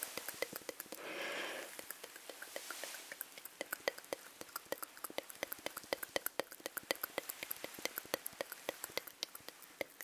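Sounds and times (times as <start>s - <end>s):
wet mouth clicks and smacks: 0.0s - 10.0s
breathy puff of air: 1.0s - 1.8s.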